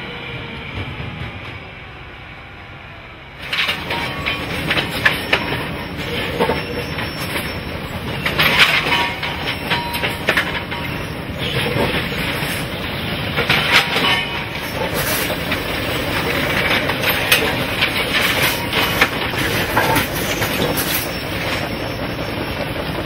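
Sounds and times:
metallic clanks and knocks: 0:03.4 - 0:22.6
machinery running: 0:03.4 - 0:23.0.

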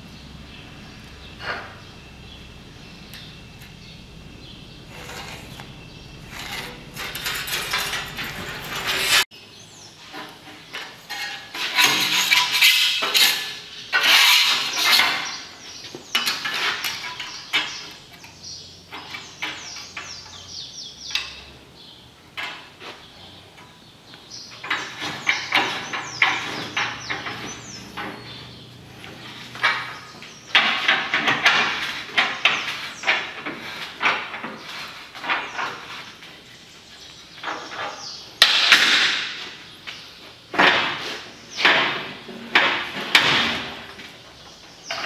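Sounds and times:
sheet metal scraping: 0:01.3 - 0:09.3, 0:10.0 - 0:20.6, 0:24.5 - 0:39.7
metal clanking in bending brake: 0:04.8 - 0:09.2.

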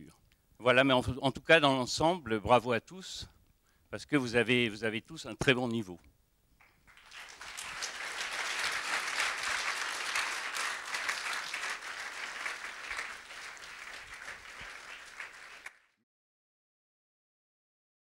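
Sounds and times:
audience applauding: 0:06.6 - 0:15.9.

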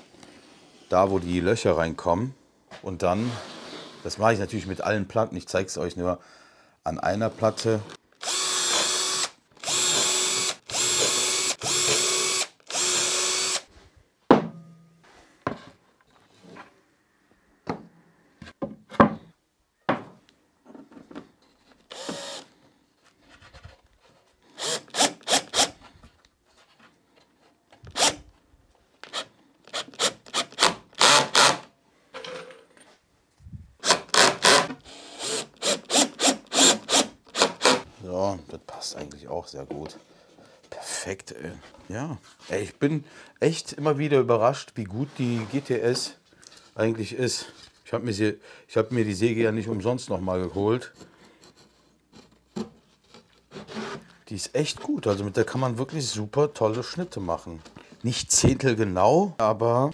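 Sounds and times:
cordless drill whining: 0:07.4 - 0:13.7, 0:21.9 - 0:22.6, 0:24.5 - 0:25.9, 0:27.9 - 0:28.3, 0:29.0 - 0:31.7, 0:33.8 - 0:37.9
drill trigger bursts: 0:07.5 - 0:13.7, 0:21.9 - 0:22.5, 0:24.6 - 0:25.8, 0:27.9 - 0:28.2, 0:29.0 - 0:31.7, 0:33.8 - 0:37.8
knocks: 0:14.3 - 0:14.7.

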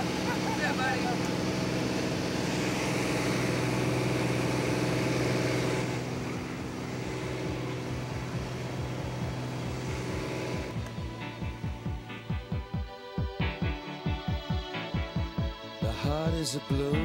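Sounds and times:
aircraft engine and propeller drone: 0:00.0 - 0:17.0
faint background music beat: 0:07.3 - 0:17.0.

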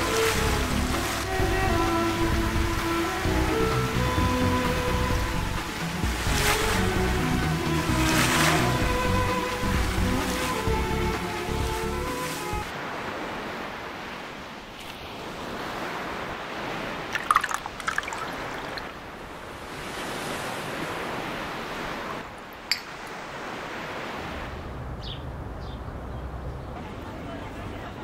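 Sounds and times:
waves washing over rocks: 0:00.0 - 0:24.6
sharp clinks: 0:22.7 - 0:23.0.

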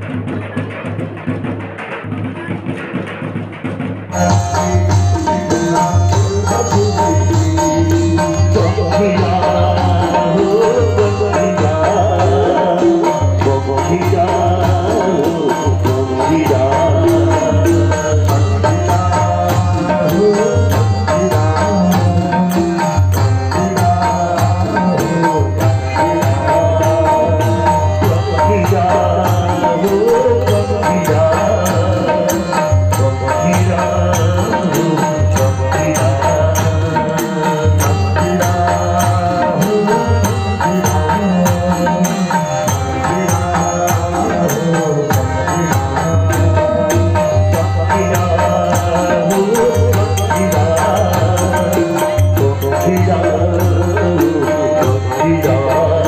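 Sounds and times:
man singing over loudspeaker: 0:00.0 - 0:56.0
repeating drum beat: 0:00.0 - 0:56.0.

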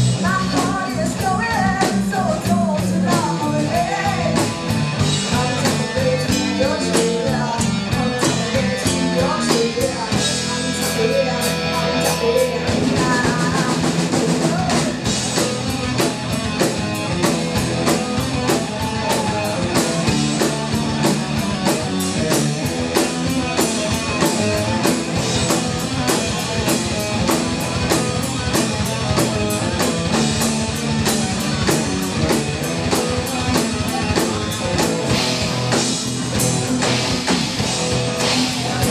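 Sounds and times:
bass guitar: 0:00.0 - 0:38.9
distorted electric guitars: 0:00.0 - 0:38.9
fast drum beat: 0:00.0 - 0:38.9
woman singing: 0:00.2 - 0:04.5, 0:05.2 - 0:15.0.

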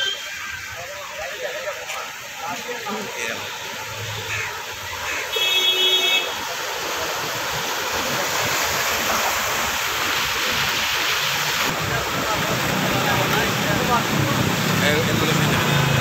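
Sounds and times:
wheels churning water: 0:00.0 - 0:16.0
vehicle horn honking: 0:05.1 - 0:06.4.

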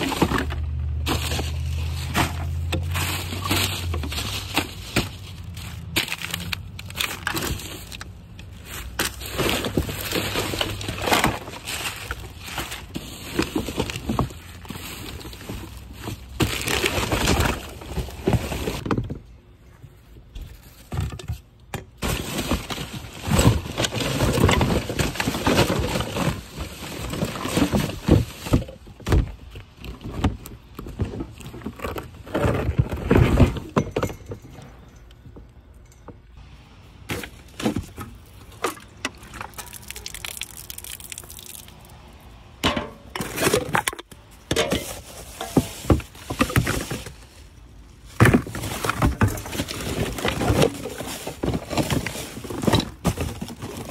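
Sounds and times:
plastic bags rustling: 0:00.0 - 0:18.8, 0:22.0 - 0:29.0, 0:43.2 - 0:53.9
bottles and cans clattering: 0:31.0 - 0:36.2, 0:42.6 - 0:47.2.

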